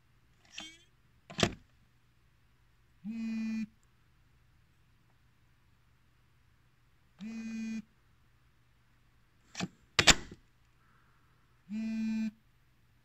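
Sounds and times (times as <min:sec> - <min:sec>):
plastic clunks of device docking: 0:01.3 - 0:01.6, 0:09.6 - 0:10.4.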